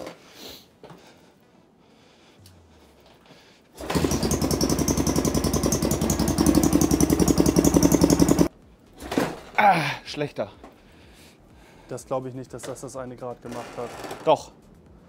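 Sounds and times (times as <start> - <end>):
engine cranking on electric starter: 3.8 - 8.5.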